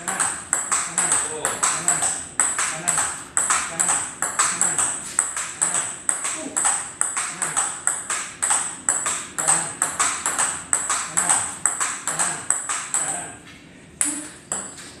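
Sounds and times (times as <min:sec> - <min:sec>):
ping-pong ball clicks: 0:00.0 - 0:13.4, 0:14.0 - 0:15.0.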